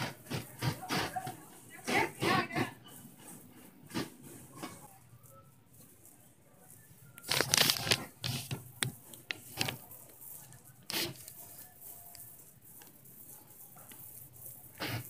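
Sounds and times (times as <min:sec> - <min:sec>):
plastic packaging crinkling: 0:07.1 - 0:10.1.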